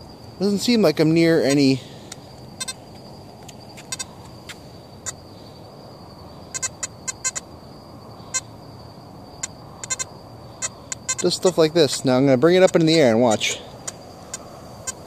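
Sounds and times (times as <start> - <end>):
faint high whine: 0.0 - 15.0
metal detector beeps: 2.6 - 2.8, 3.8 - 4.2, 6.5 - 7.4, 9.4 - 14.0.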